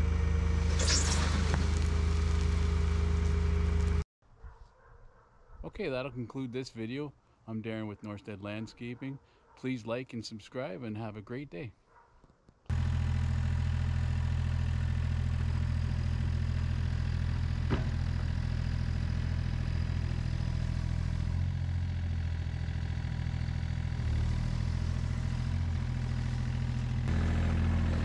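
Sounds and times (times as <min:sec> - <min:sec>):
diesel engine idling: 0:00.0 - 0:04.0, 0:12.7 - 0:28.0.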